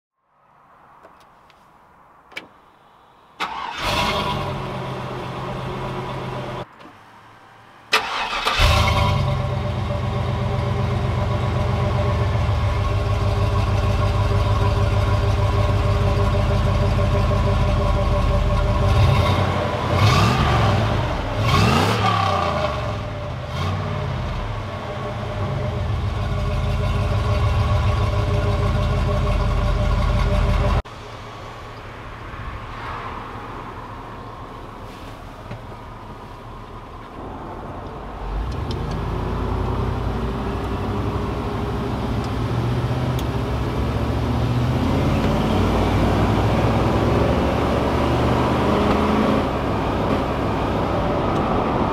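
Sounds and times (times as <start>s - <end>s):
engine starting and idling: 3.4s - 5.0s, 7.9s - 17.0s
engine revving: 3.4s - 6.7s, 7.9s - 30.8s, 38.3s - 51.9s.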